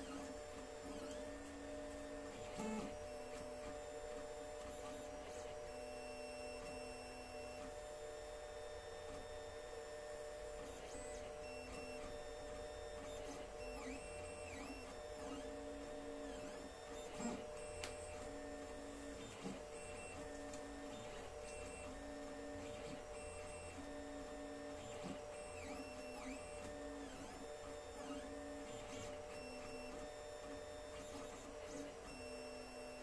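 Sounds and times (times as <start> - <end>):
stepper motors whining: 13.0 - 33.0.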